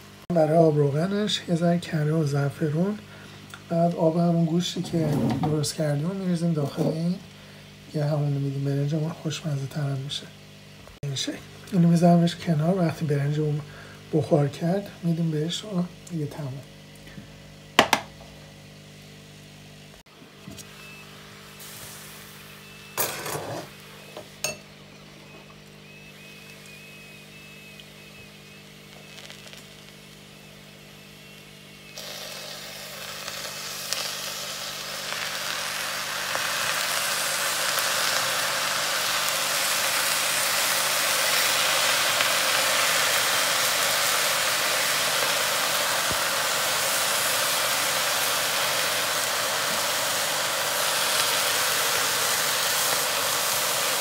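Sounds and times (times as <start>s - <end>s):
cookware knocking: 17.8s - 18.1s
liquid sizzling in hot pan: 20.8s - 25.0s, 25.7s - 54.0s.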